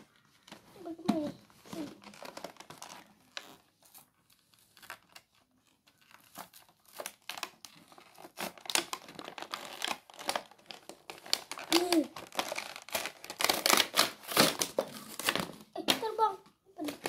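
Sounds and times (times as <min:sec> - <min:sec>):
plastic packaging crinkling: 0:01.6 - 0:16.1.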